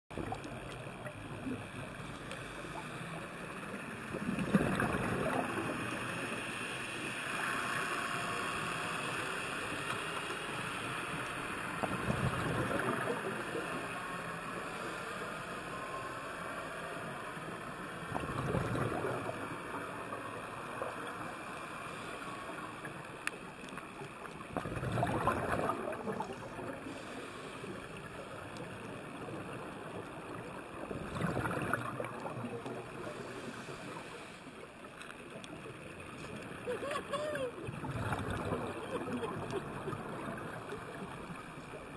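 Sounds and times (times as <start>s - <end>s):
steady underwater hiss: 0.2s - 41.9s
scuba bubbles rushing: 4.1s - 5.9s, 18.1s - 19.4s, 24.5s - 26.7s, 30.9s - 33.2s, 37.6s - 41.2s.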